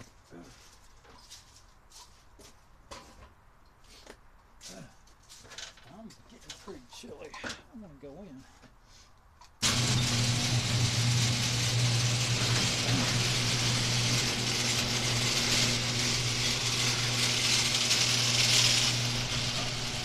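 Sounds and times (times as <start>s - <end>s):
electric motor humming and rattling: 9.6s - 20.0s.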